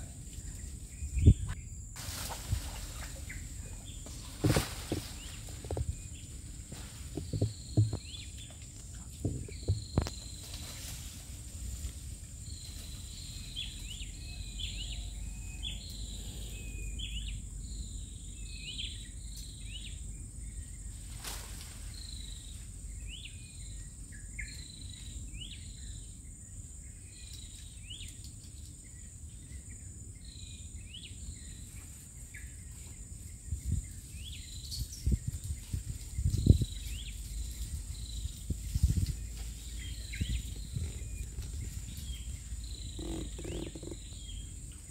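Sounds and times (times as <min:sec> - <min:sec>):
thumps: 0:07.0 - 0:08.2, 0:09.2 - 0:10.2
high insect drone: 0:36.4 - 0:44.9.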